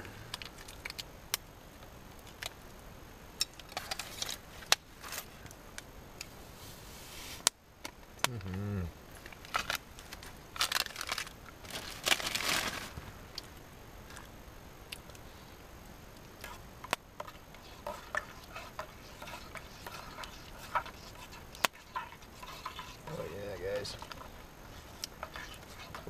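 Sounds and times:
plastic bag crinkling: 0:09.2 - 0:13.2
utensil scrapes: 0:17.2 - 0:26.0.

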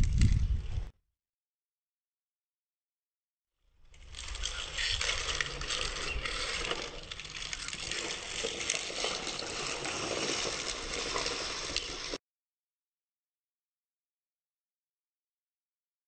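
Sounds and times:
rain on sheet metal: 0:04.0 - 0:12.2.

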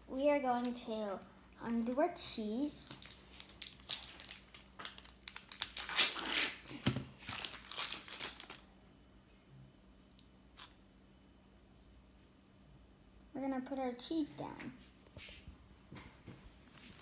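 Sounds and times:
plastic wrapper crinkling and tearing: 0:02.7 - 0:08.7.

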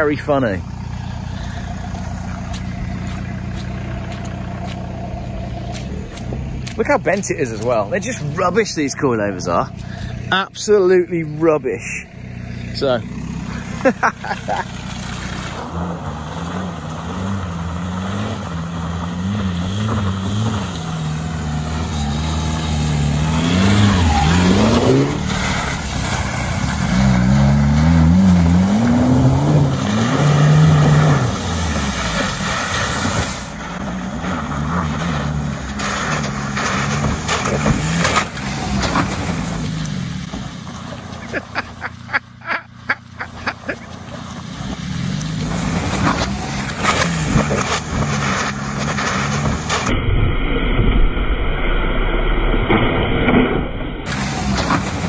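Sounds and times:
car engine revving: 0:00.0 - 0:50.0, 0:54.1 - 0:55.0.

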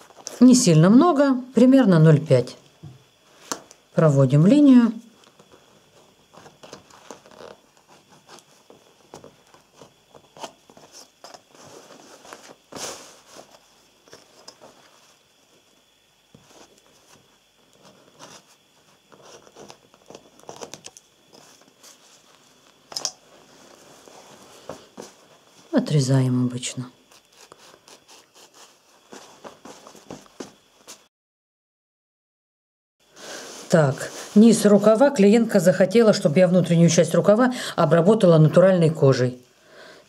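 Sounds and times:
fabric rustling: 0:05.2 - 0:15.7, 0:16.3 - 0:25.8, 0:27.1 - 0:31.1, 0:33.2 - 0:35.0
pencil scratching: 0:27.2 - 0:28.8.

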